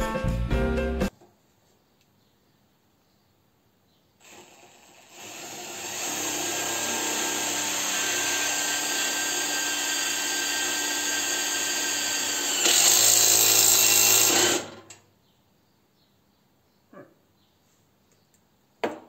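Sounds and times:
cordless drill boring into steel: 0:04.2 - 0:14.8.

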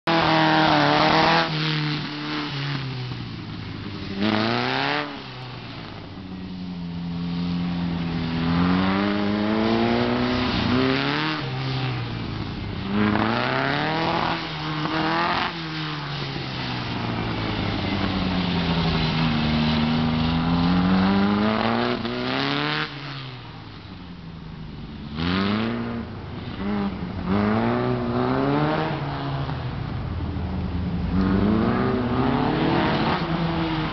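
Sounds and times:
race car engine accelerating: 0:00.0 - 0:02.9, 0:31.1 - 0:33.9.

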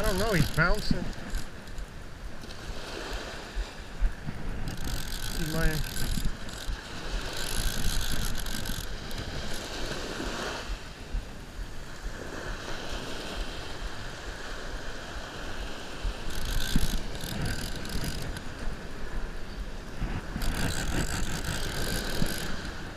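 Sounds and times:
fishing reel being cranked: 0:00.0 - 0:03.2, 0:04.4 - 0:10.1, 0:16.1 - 0:18.6, 0:20.2 - 0:22.9.

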